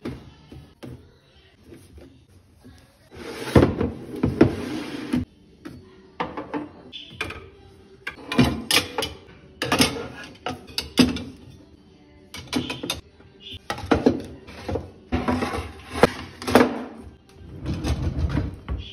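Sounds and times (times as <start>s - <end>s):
glass lids clinking in rack: 8.1s - 11.4s.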